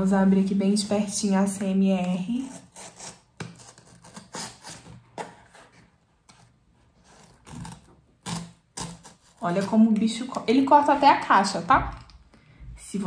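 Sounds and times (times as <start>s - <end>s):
blade slitting box tape: 2.5s - 5.4s.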